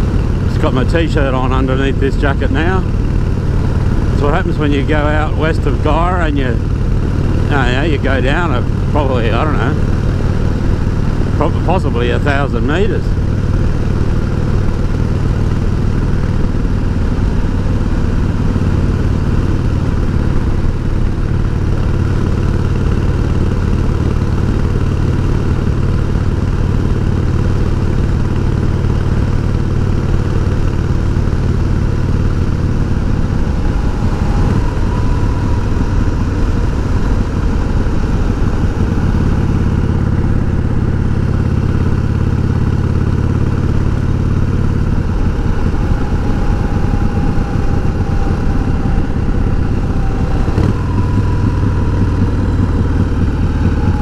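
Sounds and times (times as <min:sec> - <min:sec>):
motorcycle engine running: 0:00.0 - 0:54.0
wind rushing: 0:32.8 - 0:41.0.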